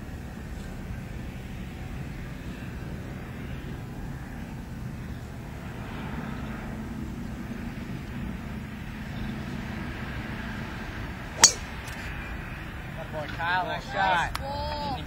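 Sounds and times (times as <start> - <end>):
low even hum: 11.4 - 12.2.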